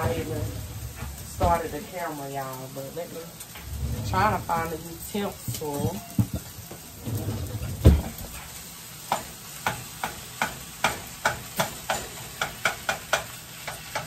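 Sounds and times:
meat sizzling: 0.0s - 14.0s
spatula scraping in frying pan: 0.0s - 14.0s
dull thump: 7.2s - 8.4s.

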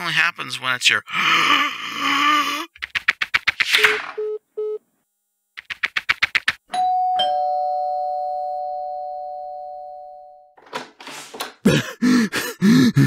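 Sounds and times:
rapid clicking: 5.6s - 6.6s
ding-dong doorbell chime: 6.7s - 10.6s.

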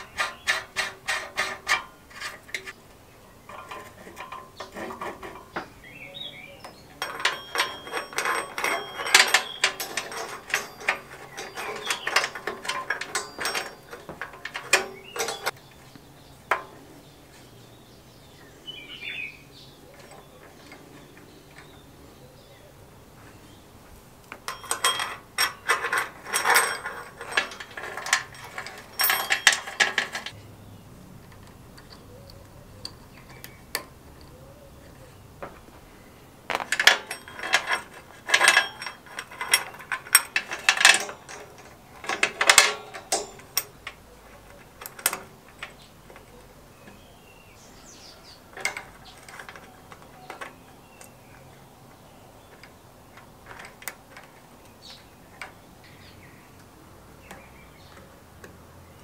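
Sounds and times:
metal chain rattling: 0.0s - 2.8s, 3.4s - 15.6s, 19.5s - 22.5s, 24.4s - 30.4s, 36.5s - 56.2s.

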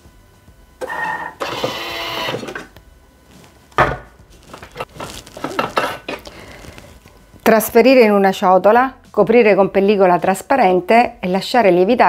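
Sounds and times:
bowl clicks and clatter: 4.7s - 6.3s.

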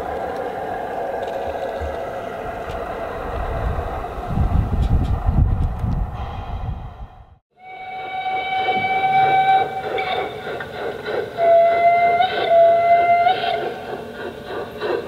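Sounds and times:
low rumble of running train: 0.0s - 15.0s
model locomotive whistle: 7.6s - 14.0s.

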